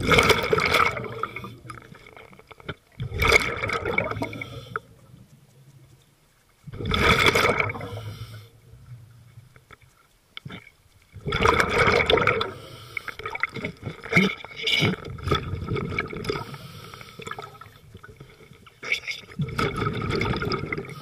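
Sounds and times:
exhaled bubbles rushing: 0.0 - 2.3, 2.9 - 4.4, 6.7 - 8.0, 11.2 - 12.6, 13.3 - 16.4, 19.4 - 20.9
diver breathing through regulator: 4.1 - 4.9, 7.0 - 8.6, 12.4 - 13.4, 16.3 - 17.7.

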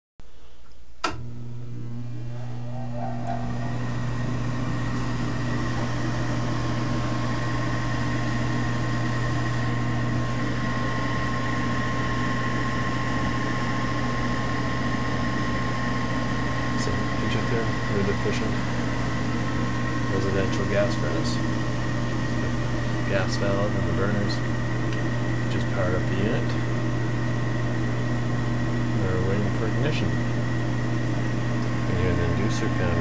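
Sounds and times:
fan motor whining and humming: 0.3 - 33.0
furnace fan switch click: 0.7 - 1.2.

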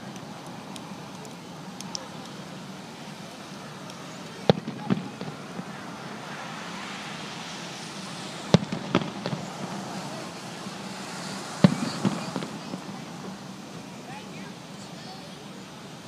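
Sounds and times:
firework shells bursting: 0.0 - 15.0
smaller firework cracks: 3.2 - 15.3.

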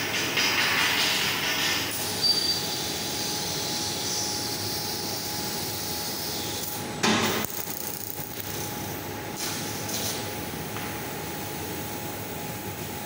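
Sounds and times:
laser cutting machine hiss and hum: 0.0 - 13.0.

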